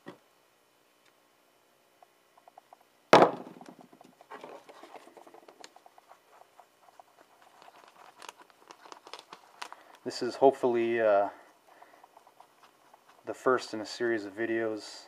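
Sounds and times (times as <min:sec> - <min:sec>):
stick scraping and tapping on card: 0:04.2 - 0:10.0, 0:11.6 - 0:14.1.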